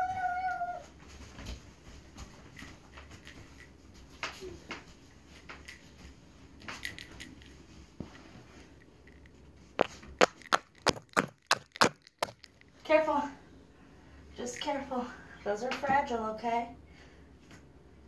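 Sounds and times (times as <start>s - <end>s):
small objects clicking and knocking: 9.1s - 12.7s.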